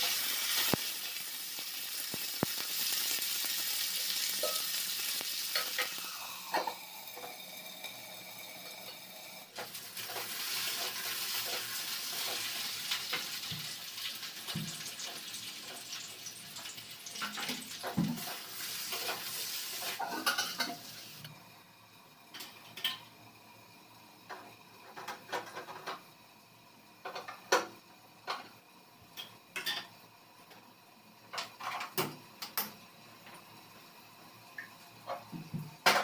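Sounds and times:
frying hiss: 0:00.0 - 0:36.0
metal utensils clinking on pans: 0:04.3 - 0:04.9, 0:05.5 - 0:07.4, 0:17.1 - 0:20.8, 0:22.3 - 0:23.1, 0:29.2 - 0:30.0, 0:31.3 - 0:32.7.

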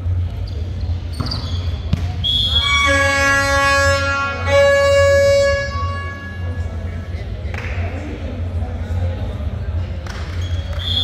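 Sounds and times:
short high whistle: 0:02.2 - 0:02.8, 0:10.5 - 0:11.0
long buzzy horn tone: 0:02.6 - 0:06.6.

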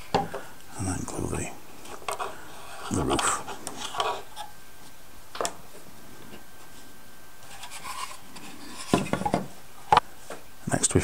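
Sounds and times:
wood knocking and rubbing on wood: 0:08.7 - 0:10.0.

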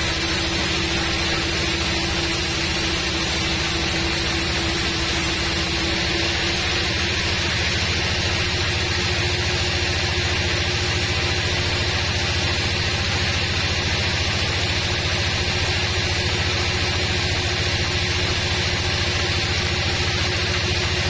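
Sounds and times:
band saw sawing a log: 0:00.0 - 0:09.2.

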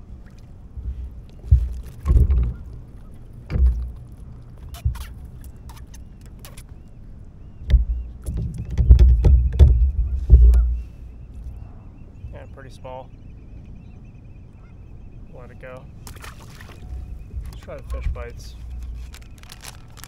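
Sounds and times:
rod bumping against hull: 0:00.8 - 0:06.6, 0:07.6 - 0:11.5, 0:16.1 - 0:20.0
fish knocking on plastic kayak: 0:01.4 - 0:02.8, 0:03.4 - 0:04.2, 0:07.6 - 0:10.9.

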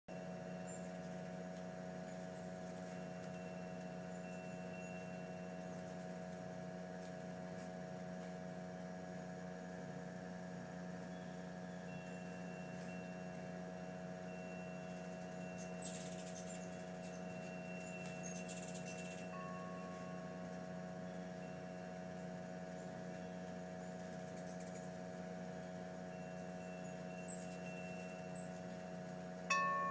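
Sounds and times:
steady mechanical hum: 0:00.1 - 0:29.9
faint thin high tone: 0:29.5 - 0:29.9.

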